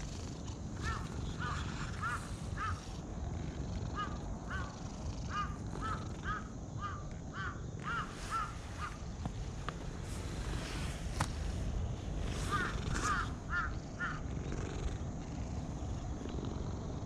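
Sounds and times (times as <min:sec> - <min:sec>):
bird calling: 0:00.8 - 0:03.0, 0:04.0 - 0:09.0, 0:12.4 - 0:14.2.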